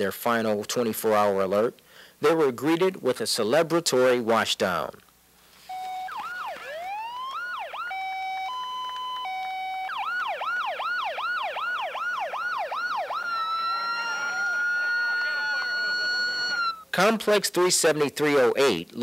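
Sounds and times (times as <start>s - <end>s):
electronic siren: 5.7s - 16.8s.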